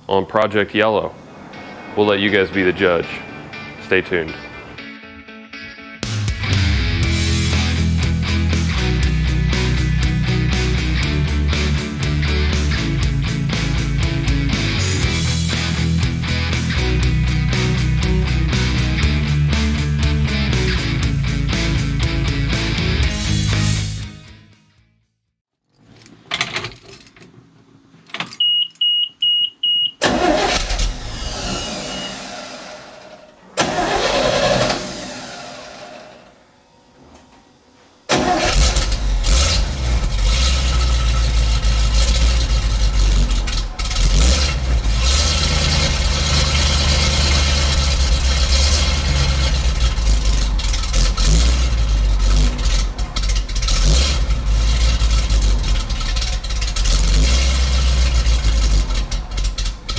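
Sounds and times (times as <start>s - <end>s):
truck engine starting and rumbling: 0.0s - 4.8s, 6.0s - 24.0s, 30.0s - 36.9s, 38.1s - 59.9s
dashboard warning beeping: 28.4s - 30.4s.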